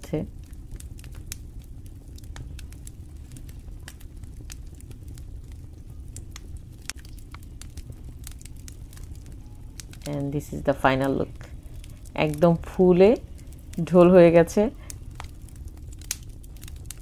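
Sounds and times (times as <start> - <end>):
fire crackling and popping: 0.0 - 17.0
low steady rumble: 0.0 - 17.0.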